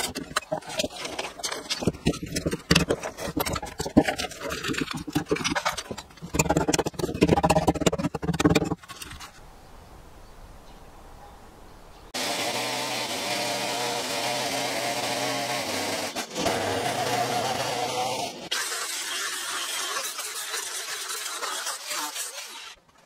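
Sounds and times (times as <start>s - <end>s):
chainsaw running: 12.2s - 22.7s.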